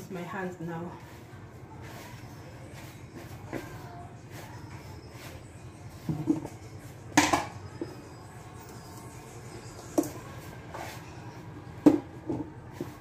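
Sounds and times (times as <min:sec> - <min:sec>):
dough mixed by hand in bowl: 0:00.0 - 0:07.1, 0:10.2 - 0:11.5, 0:12.1 - 0:13.0.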